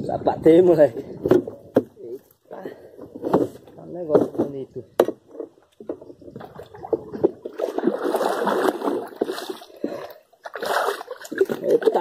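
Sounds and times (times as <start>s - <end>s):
water splashing and sloshing: 5.3s - 12.0s.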